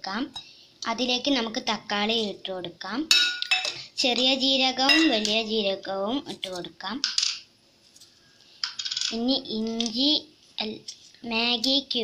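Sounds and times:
person's voice: 0:04.0 - 0:07.0, 0:09.1 - 0:12.0.

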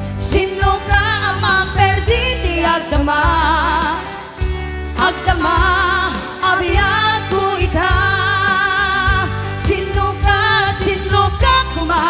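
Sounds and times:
keyboard beat and bass line: 0:00.0 - 0:12.0
women singing pop song: 0:00.0 - 0:12.0.

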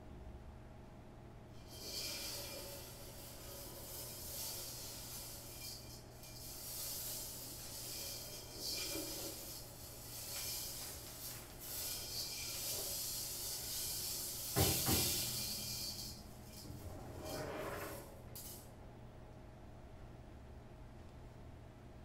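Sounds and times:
seeds rattling on cymbal: 0:01.6 - 0:18.6.

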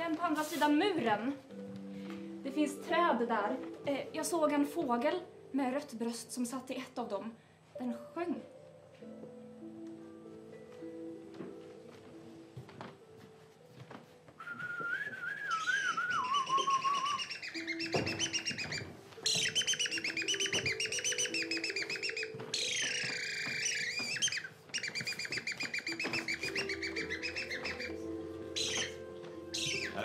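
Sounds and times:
soft sustained music notes: 0:00.0 - 0:07.2, 0:07.8 - 0:30.0
wavering whistle: 0:14.4 - 0:30.0
bird chirping trills: 0:15.5 - 0:30.0.

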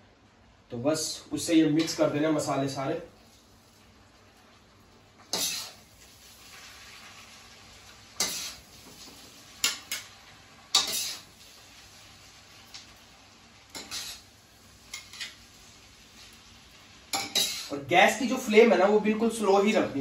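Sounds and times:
faint sizzle: 0:00.0 - 0:20.0
utensils scraping a wok: 0:05.2 - 0:07.3, 0:08.2 - 0:10.1, 0:10.7 - 0:11.8, 0:13.7 - 0:15.6, 0:17.1 - 0:17.8.

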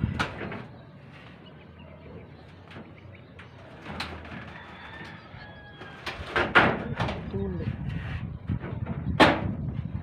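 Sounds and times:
knocks on corrugated roofing sheets: 0:06.2 - 0:07.2, 0:09.2 - 0:09.6.

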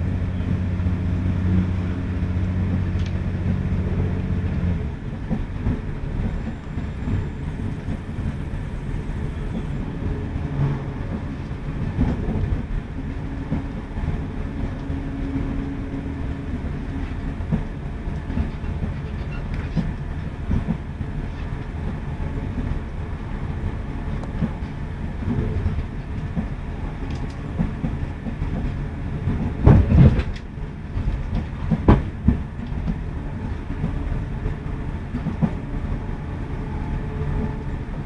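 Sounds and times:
train rumble from inside carriage: 0:00.0 - 0:38.0
wheels knocking on track: 0:27.6 - 0:33.0.

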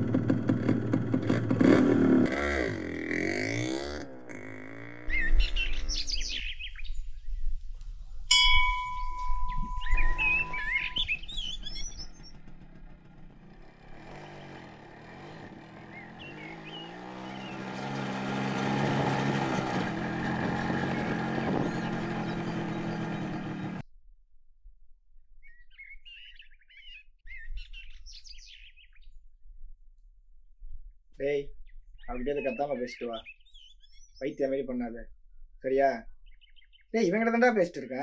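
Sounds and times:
motorcycle engine running: 0:00.0 - 0:05.2, 0:08.9 - 0:23.8
birds chirping: 0:04.9 - 0:07.6, 0:08.3 - 0:23.8, 0:25.4 - 0:29.2, 0:31.2 - 0:37.9.

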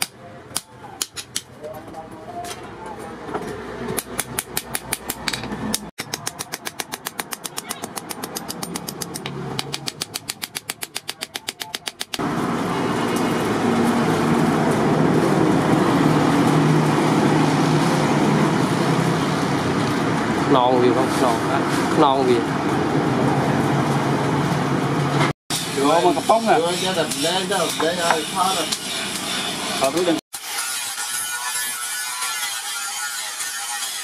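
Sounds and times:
hammer striking blade on anvil: 0:03.9 - 0:12.2.

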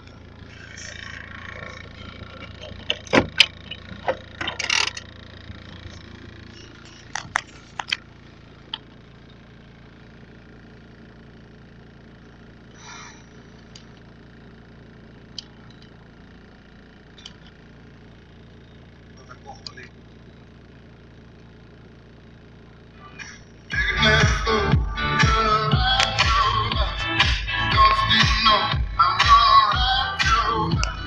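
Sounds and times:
diesel engine idling: 0:00.0 - 0:31.0
sharp clicks and knocks: 0:02.1 - 0:06.1, 0:06.8 - 0:08.1.

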